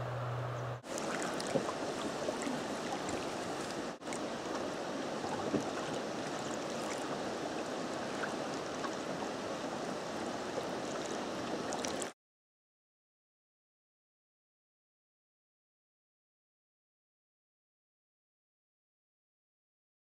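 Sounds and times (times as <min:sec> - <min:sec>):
river water flowing: 0:00.0 - 0:12.2
small water splashes: 0:00.8 - 0:12.2.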